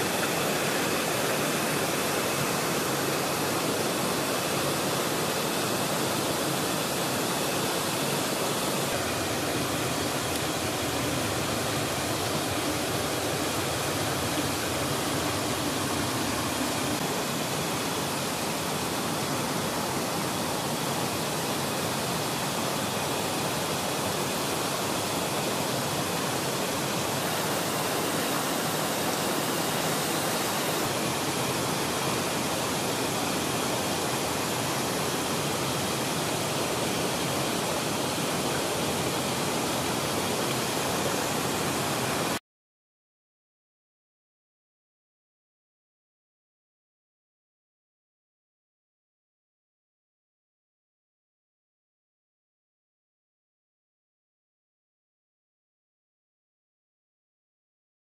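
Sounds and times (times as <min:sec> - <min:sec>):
stream rushing over rocks: 0:00.0 - 0:42.4.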